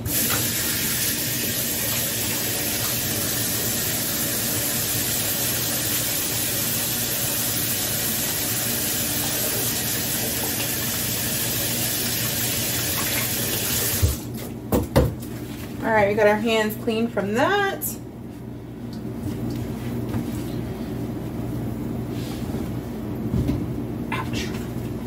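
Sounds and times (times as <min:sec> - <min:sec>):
faucet running into sink: 0:00.0 - 0:14.2.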